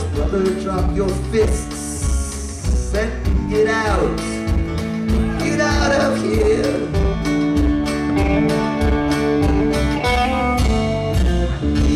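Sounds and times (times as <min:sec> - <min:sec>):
strummed guitars: 0:00.0 - 0:11.9.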